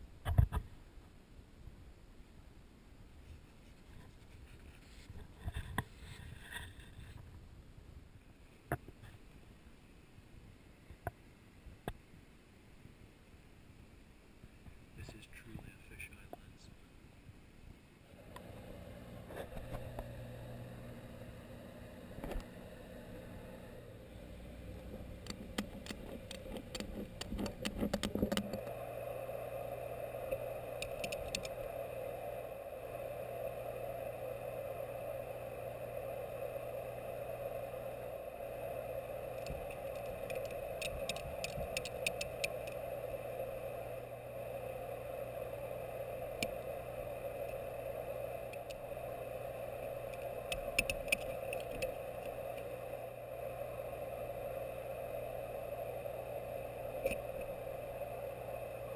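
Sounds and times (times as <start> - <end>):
steady hum: 17.7 - 58.9
clicking and rattling: 25.0 - 28.6.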